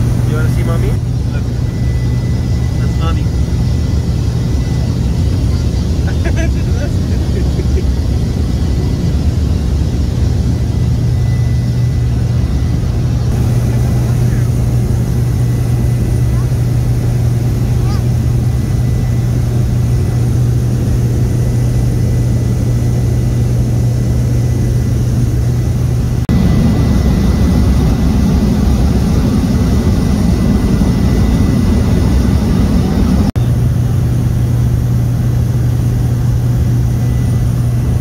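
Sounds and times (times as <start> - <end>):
propeller plane engine drone: 0.0 - 38.0.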